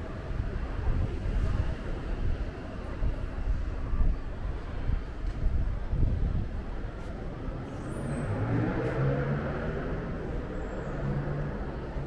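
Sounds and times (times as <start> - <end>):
low urban rumble: 0.0 - 12.0
vehicle passing: 8.0 - 12.0.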